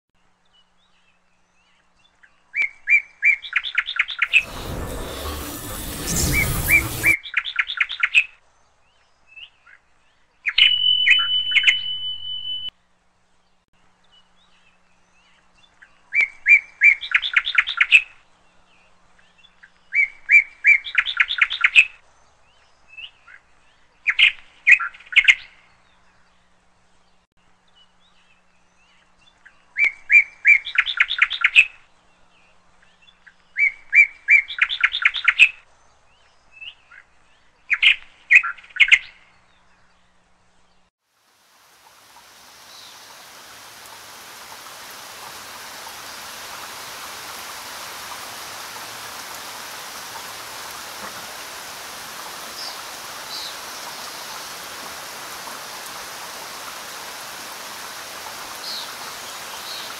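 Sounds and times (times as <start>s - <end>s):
low hum: 4.3s - 7.2s
rushing noise: 4.3s - 7.2s
bird chirping: 10.4s - 12.7s.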